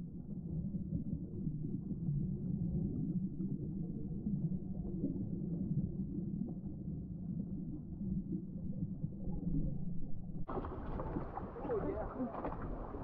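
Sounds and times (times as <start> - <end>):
underwater rumble of moving water: 0.0 - 13.0
water splashing: 10.5 - 13.0.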